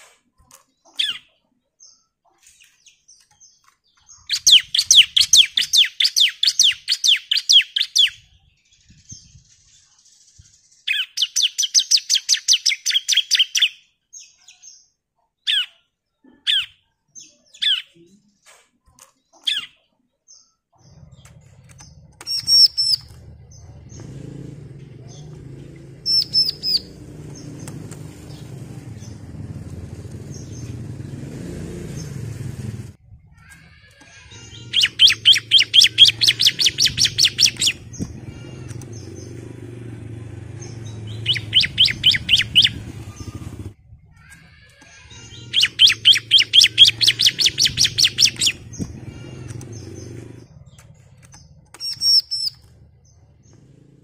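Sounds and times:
bird singing trills: 0.7s - 18.4s, 19.2s - 32.2s, 33.2s - 53.8s
bird call notes: 21.8s - 24.2s, 25.1s - 31.0s, 34.1s - 43.8s, 45.0s - 52.8s.

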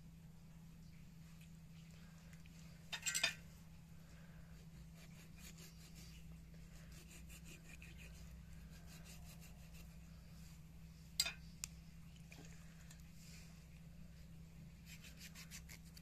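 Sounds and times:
knife sawing through chicken skin: 4.6s - 10.0s, 14.8s - 16.0s.

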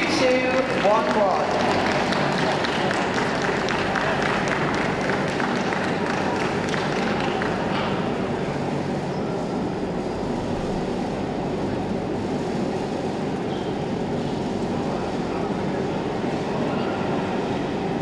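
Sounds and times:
crowd hubbub: 0.0s - 10.3s.

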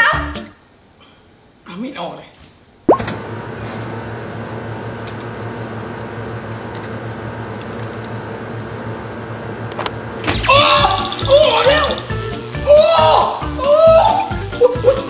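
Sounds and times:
low electrical hum with hiss: 0.0s - 2.9s.

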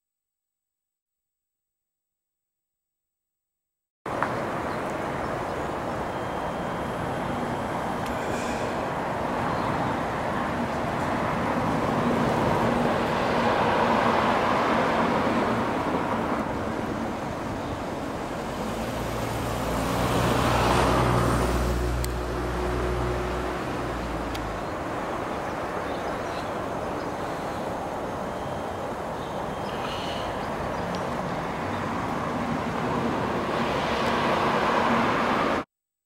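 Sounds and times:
road traffic passing: 4.1s - 35.7s.

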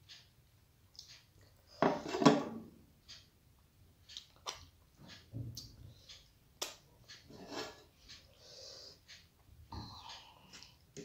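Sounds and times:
fingers clicking and smacking food: 4.0s - 4.8s, 6.5s - 7.2s.

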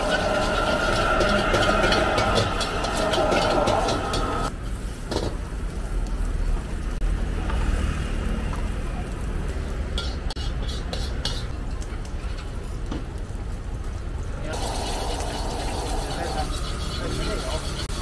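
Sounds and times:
metal spatula scraping wok: 0.0s - 4.5s, 9.9s - 11.6s, 14.7s - 18.0s
gas burner roaring: 0.0s - 13.4s, 14.2s - 18.0s.

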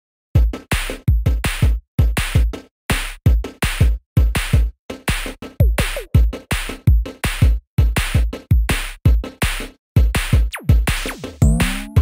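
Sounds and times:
drum machine kicks: 5.6s - 12.0s
drum machine snare hits: 10.1s - 12.0s.

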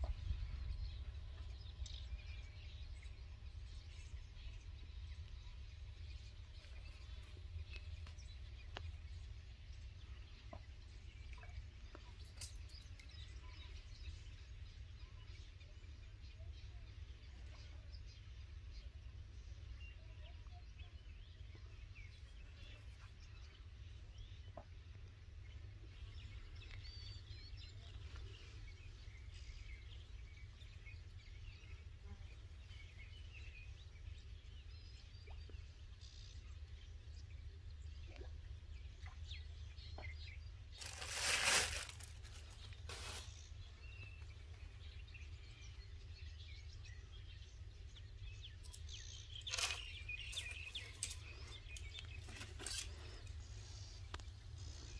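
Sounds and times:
faint bird chirps: 9.8s - 24.8s, 25.4s - 54.9s
loud rustle or crunch: 40.7s - 43.5s, 49.3s - 53.2s.

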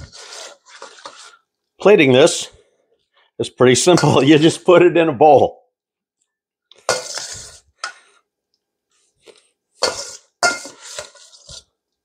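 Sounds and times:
utensil clinking and scraping bowls: 0.0s - 1.4s, 6.7s - 8.2s, 9.2s - 11.8s.

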